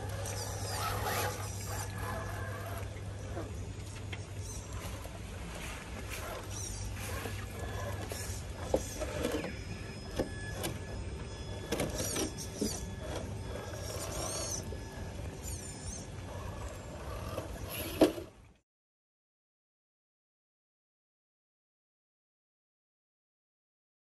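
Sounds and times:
birds calling: 0.0s - 18.3s
small electric motor whining: 0.0s - 18.4s.

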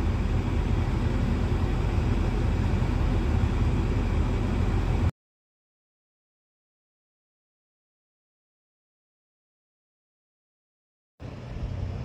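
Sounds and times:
car cabin engine rumble: 0.0s - 5.1s, 11.2s - 12.0s.

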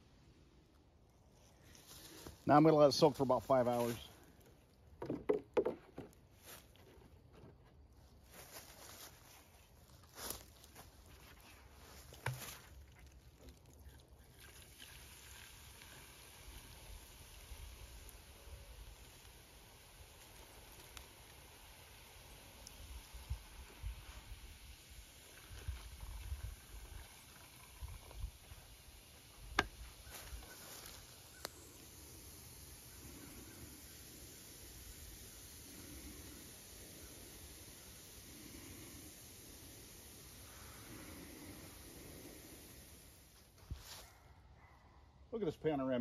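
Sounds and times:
plastic jug handling: 4.9s - 7.6s, 11.1s - 13.6s
liquid pouring into plastic tub: 11.2s - 29.7s.

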